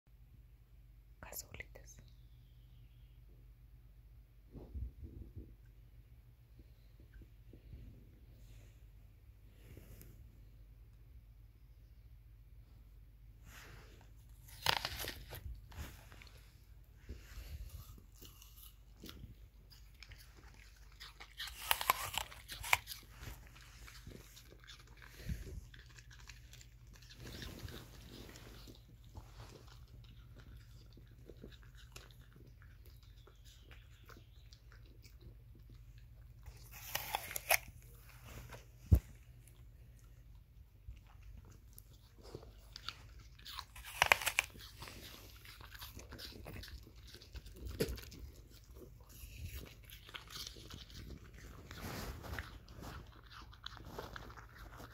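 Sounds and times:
dogs crunching apple: 13.5s - 54.9s
dogs chewing: 14.4s - 38.3s, 38.9s - 54.9s.

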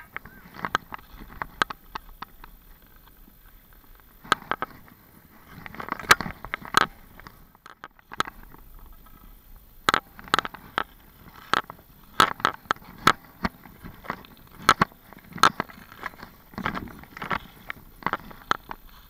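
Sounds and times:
hockey stick clacking on ice: 9.9s - 18.9s
skates scraping on ice: 10.1s - 19.0s.

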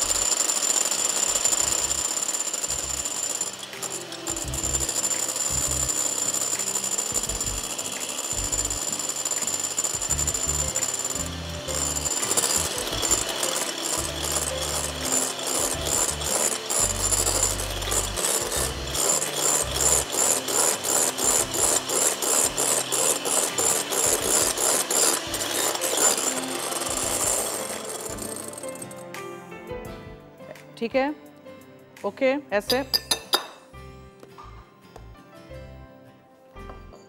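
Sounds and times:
beaters scraping a bowl: 0.0s - 29.0s.

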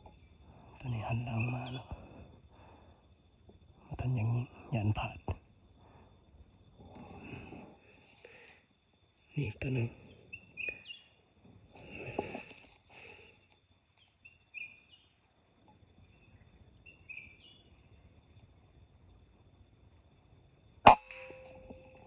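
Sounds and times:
bird chirps: 9.8s - 11.2s, 14.0s - 15.2s, 15.9s - 18.2s
faint ring: 20.9s - 22.0s.

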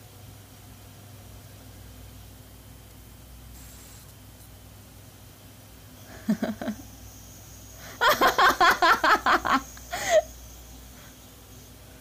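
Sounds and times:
person laughing: 6.1s - 6.9s, 7.9s - 10.3s.

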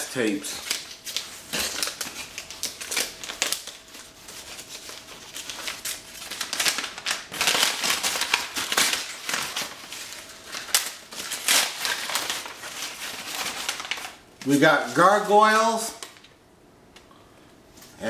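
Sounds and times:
paper wrapping rustling: 0.0s - 16.3s.

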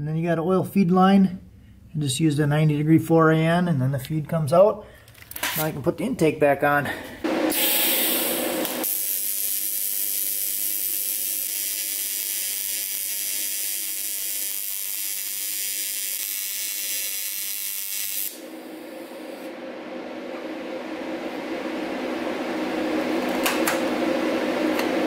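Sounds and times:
welding arc hissing: 7.2s - 19.5s.

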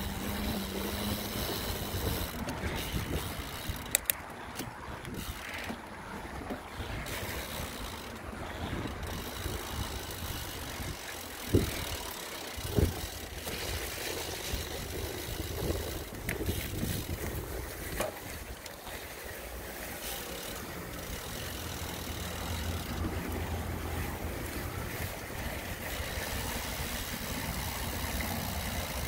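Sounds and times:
wind rumble on microphone: 0.0s - 4.0s, 4.6s - 18.7s
bicycle tyre noise: 0.0s - 29.0s.

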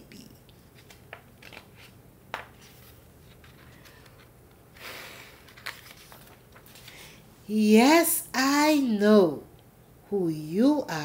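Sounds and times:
page turning rustle: 0.5s - 7.2s.

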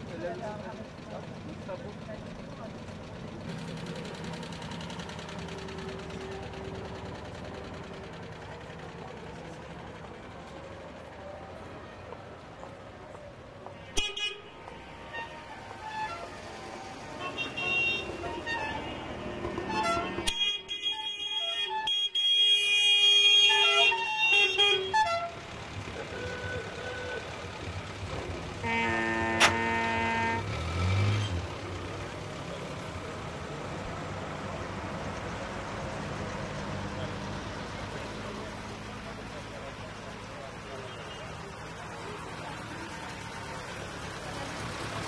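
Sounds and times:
cars driving slowly past: 0.0s - 20.3s, 24.8s - 45.0s
car engine buzzing past: 27.8s - 40.6s.

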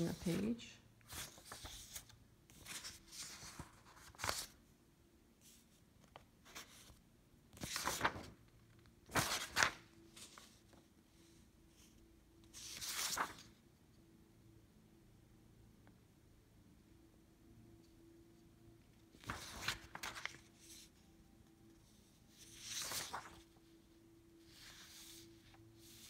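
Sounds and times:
paper rustling: 1.1s - 4.6s, 5.5s - 8.4s, 9.1s - 10.8s, 12.6s - 13.5s, 19.2s - 20.9s, 22.3s - 23.6s.

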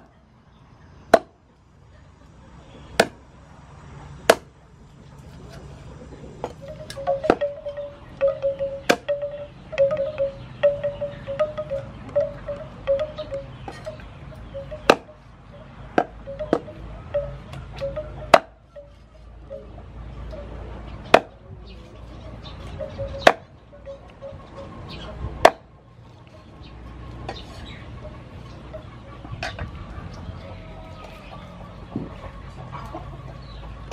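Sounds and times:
cleaver chopping on wooden block: 1.1s - 1.4s, 3.0s - 3.2s, 4.3s - 4.5s, 14.8s - 15.1s, 16.0s - 16.7s, 18.3s - 18.6s, 21.1s - 21.4s.

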